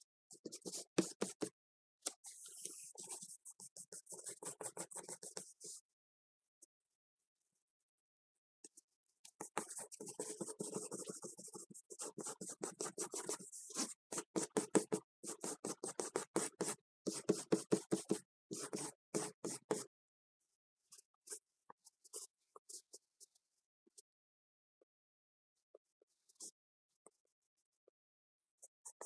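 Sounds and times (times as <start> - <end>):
pencil scratching on paper: 0.3 - 1.5, 2.2 - 5.8, 9.4 - 19.9.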